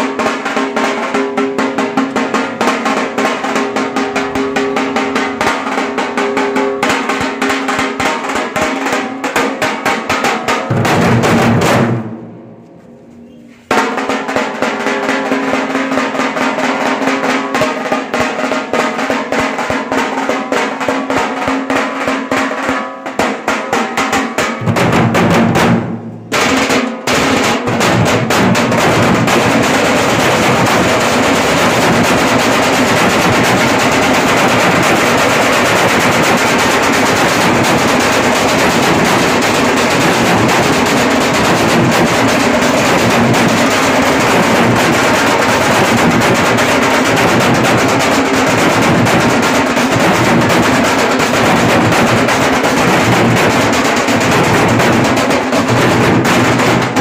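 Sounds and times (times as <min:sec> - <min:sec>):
drums beaten with sticks: 0:00.0 - 0:12.6, 0:13.7 - 0:57.0.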